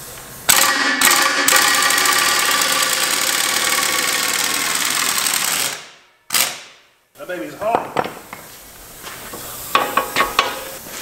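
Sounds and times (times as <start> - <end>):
pneumatic impact wrench hammering: 0.5 - 6.8, 9.7 - 10.8.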